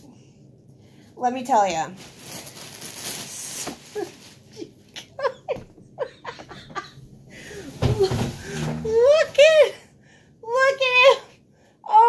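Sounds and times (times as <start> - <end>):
plush toy rustling: 2.0 - 4.7.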